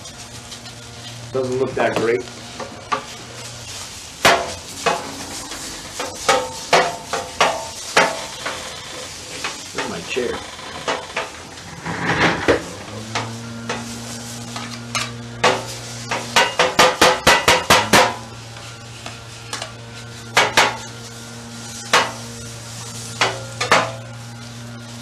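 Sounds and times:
spatulas scraping steak: 1.8 - 25.0
metal spatulas clanking on griddle: 4.2 - 5.2, 6.0 - 8.6, 23.2 - 24.0.

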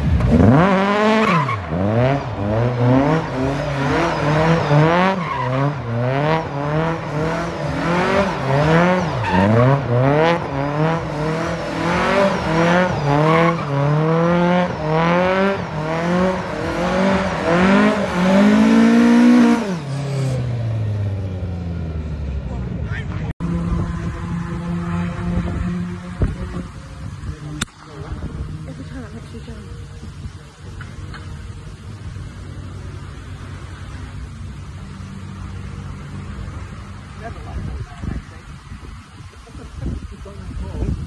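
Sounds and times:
car engine revving: 0.0 - 38.5
tyres squealing: 7.6 - 10.1.

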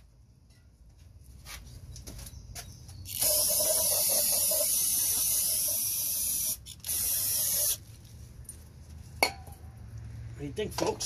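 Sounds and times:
aerosol can spraying: 3.1 - 7.8.

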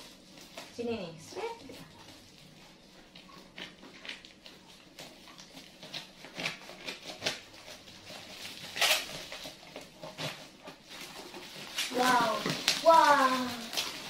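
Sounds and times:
plastic crinkling: 0.0 - 14.0
scissors snipping plastic: 8.4 - 10.5, 11.7 - 14.0.

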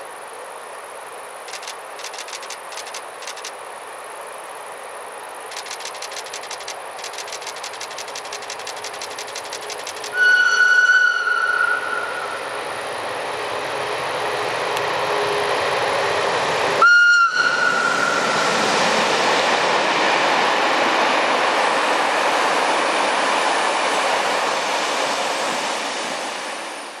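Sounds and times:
train rumble and clatter: 0.1 - 27.0
train horn blast: 10.2 - 12.5, 16.8 - 18.4.

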